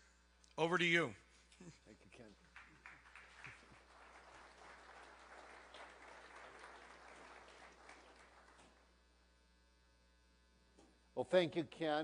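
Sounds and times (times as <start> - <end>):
faint audience applause: 2.2 - 8.9.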